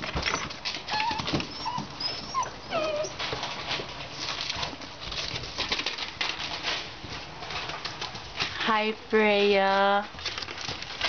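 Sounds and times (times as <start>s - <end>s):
puppies whimpering: 0.2s - 3.4s
newspaper crackling: 3.0s - 8.7s, 9.4s - 11.0s.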